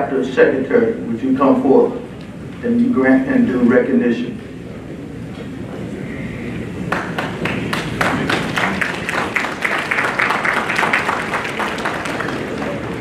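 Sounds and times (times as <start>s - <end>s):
audience applause: 6.9s - 13.0s.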